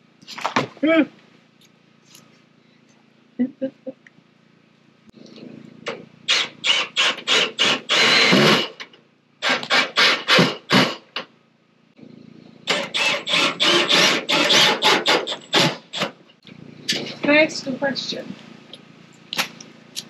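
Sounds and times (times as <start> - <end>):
hand saw cutting: 6.3 - 8.8, 9.4 - 11.0, 12.7 - 16.1.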